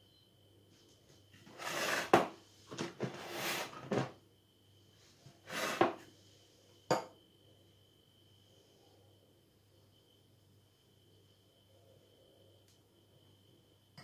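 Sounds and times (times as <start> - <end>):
baking tray scraping on worktop: 1.5 - 4.1, 5.4 - 6.0.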